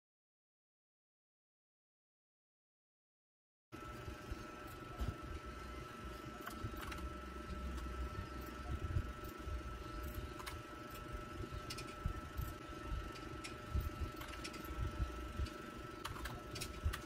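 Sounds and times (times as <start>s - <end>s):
faint high hum: 3.8s - 17.0s
keyboard keys clicking: 13.2s - 17.0s.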